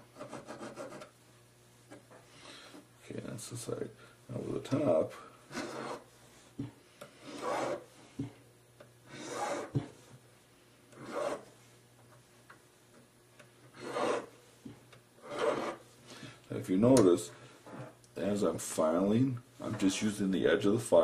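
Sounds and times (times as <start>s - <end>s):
file rasping on metal ring: 5.5s - 6.1s, 7.2s - 7.9s, 9.1s - 9.8s, 11.0s - 11.5s, 13.7s - 14.3s, 15.2s - 15.8s.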